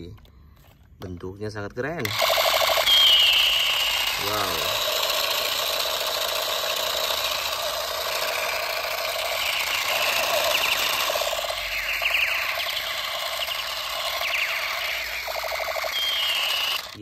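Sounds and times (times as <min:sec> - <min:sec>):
toy pistol mechanical rattle: 0:02.0 - 0:17.0
electronic falling sweeps: 0:02.2 - 0:04.7, 0:07.9 - 0:17.0.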